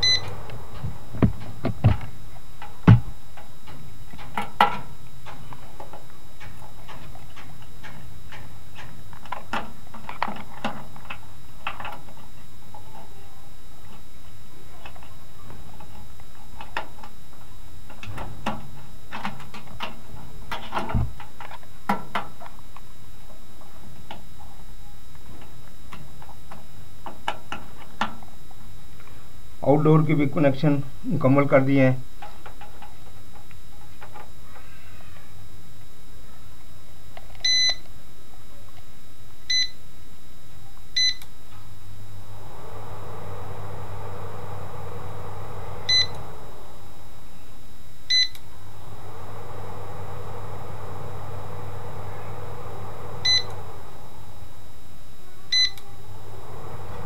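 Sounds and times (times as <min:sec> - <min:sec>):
short electronic beep: 0:00.0 - 0:00.3
air conditioner blower fan: 0:00.0 - 0:57.0.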